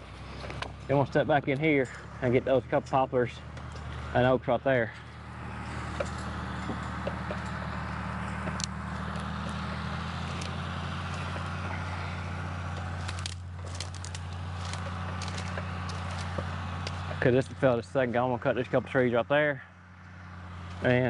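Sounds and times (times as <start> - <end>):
diesel tractor engine idling: 0.0 - 21.0
light clicks and cracks: 8.2 - 17.2.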